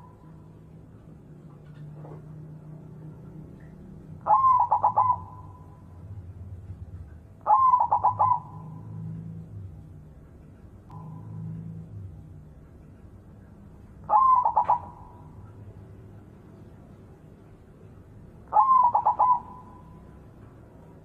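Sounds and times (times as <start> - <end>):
dove cooing: 4.2 - 5.6, 7.4 - 9.4, 14.0 - 15.4, 18.5 - 20.0.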